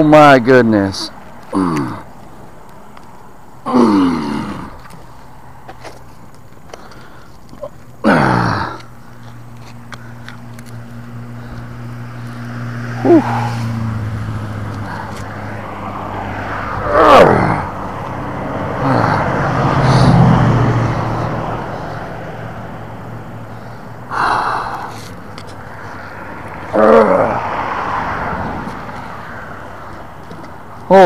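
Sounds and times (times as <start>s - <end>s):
man straining and grunting: 1.4s - 2.2s, 3.6s - 4.9s, 7.5s - 9.0s, 12.9s - 13.9s, 16.7s - 17.8s, 18.6s - 20.3s, 24.1s - 25.1s, 26.6s - 27.6s
man groaning: 1.5s - 2.1s, 3.6s - 4.8s, 8.0s - 8.9s, 13.0s - 13.7s, 16.7s - 17.8s, 18.7s - 20.2s, 26.7s - 27.5s.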